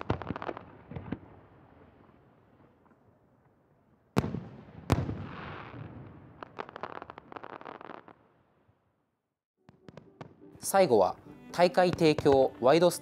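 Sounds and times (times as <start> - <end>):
firework crackling pops: 0.0 - 2.0, 4.2 - 8.3, 11.8 - 12.7.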